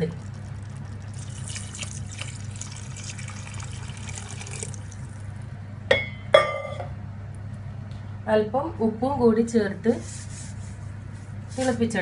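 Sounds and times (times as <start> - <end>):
water pouring and splashing: 0.0 - 5.3
steady low hum: 0.0 - 12.0.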